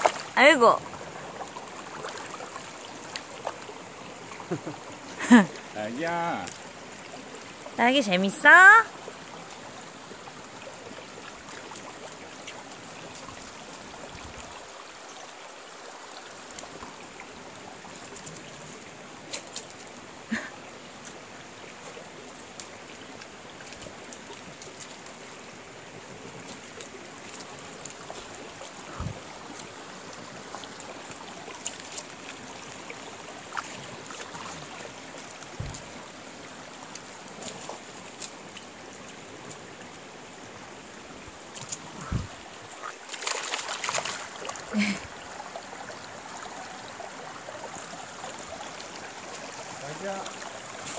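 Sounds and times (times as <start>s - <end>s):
faint knocks and splashes: 0.0s - 3.8s, 21.8s - 40.1s, 41.4s - 46.6s
stream rushing over rocks: 0.0s - 50.9s.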